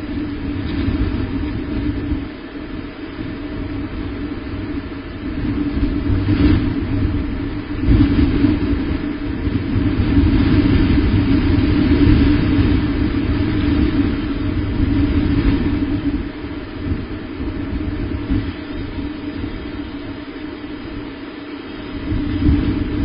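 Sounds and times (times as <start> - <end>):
low rumble: 0.0 - 23.0.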